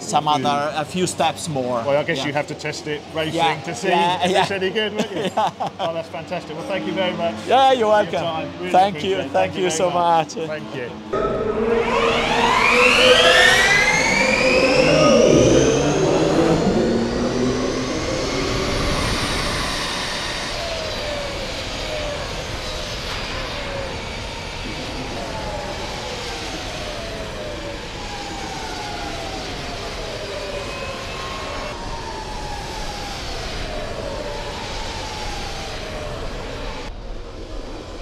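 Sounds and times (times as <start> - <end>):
steady rushing noise: 0.0 - 38.0
electric motorcycle motors whining: 11.1 - 36.9.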